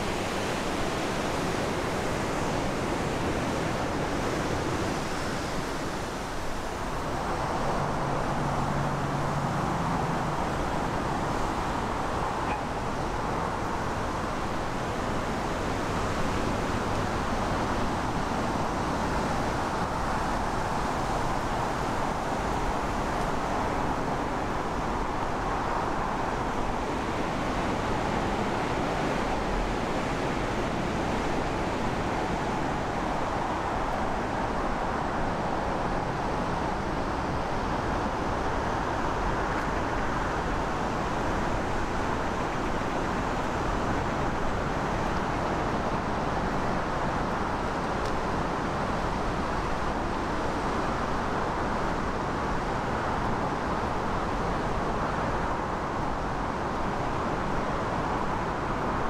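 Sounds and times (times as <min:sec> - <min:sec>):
rushing river water: 0:00.0 - 0:59.0.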